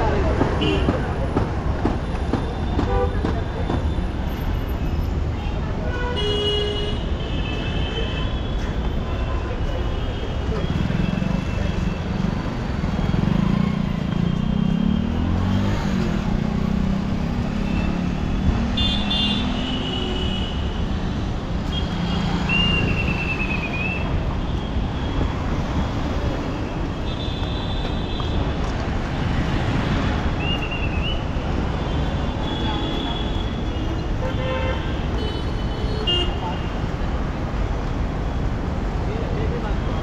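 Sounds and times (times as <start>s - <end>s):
vehicle engines running: 10.4s - 19.7s.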